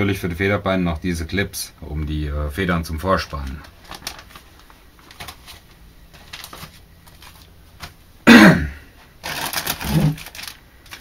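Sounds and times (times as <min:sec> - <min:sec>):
plastic wrapping rustling: 0:02.9 - 0:08.0, 0:09.0 - 0:11.0
person clearing throat: 0:08.2 - 0:08.9, 0:09.8 - 0:10.2.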